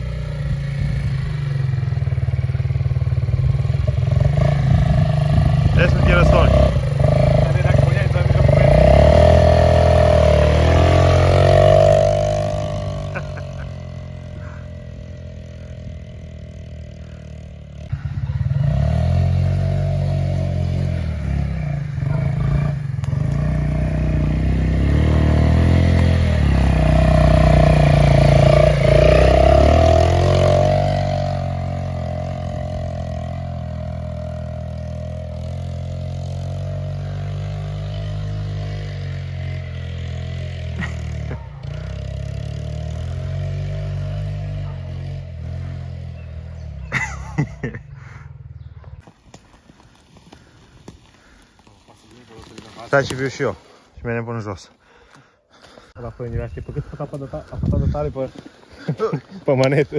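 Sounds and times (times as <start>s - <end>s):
atv engine revving: 0.0s - 59.9s.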